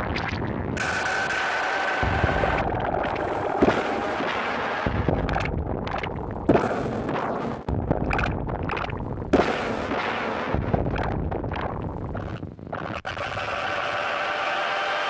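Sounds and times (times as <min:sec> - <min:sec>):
dense rumbling: 0:00.0 - 0:09.7, 0:10.5 - 0:12.9
heavy booms: 0:02.0 - 0:12.2.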